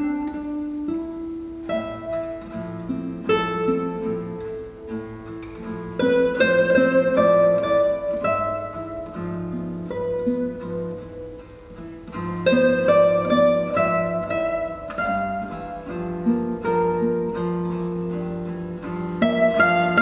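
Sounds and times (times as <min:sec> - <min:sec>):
classical guitar duet: 0:00.0 - 0:20.0.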